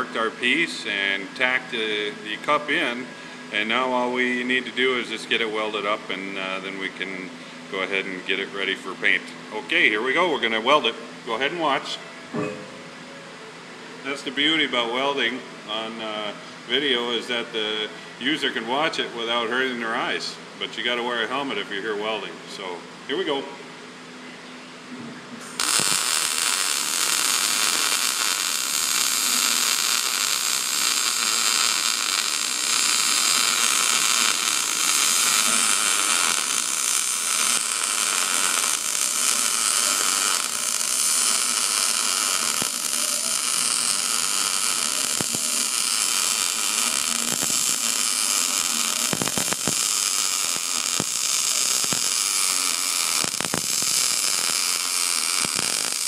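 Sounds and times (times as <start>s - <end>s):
welding arc hissing: 25.4s - 56.0s.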